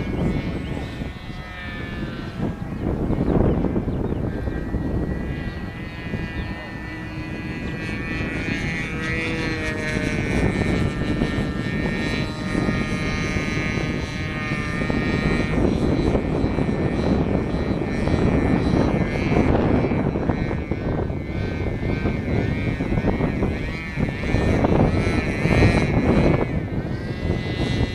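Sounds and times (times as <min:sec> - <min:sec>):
model airplane motor whine: 0:00.0 - 0:27.9.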